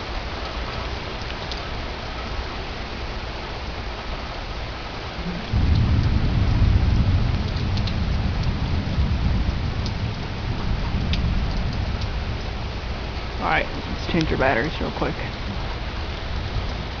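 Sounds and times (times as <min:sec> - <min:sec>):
heavy rain: 0:00.0 - 0:17.0
deep rumble of thunder: 0:05.2 - 0:14.3, 0:15.3 - 0:17.0.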